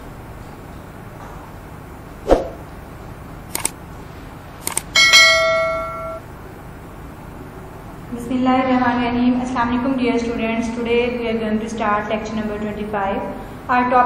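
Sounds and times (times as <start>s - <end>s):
swoosh: 2.2s - 2.6s
notification bell ding: 5.0s - 6.2s.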